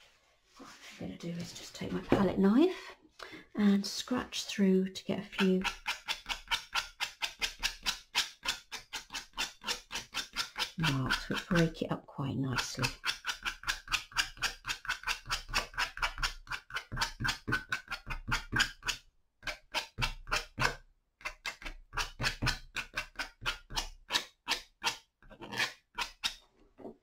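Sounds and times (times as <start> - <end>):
palette knife scratching paper: 5.3 - 11.8, 12.6 - 24.4.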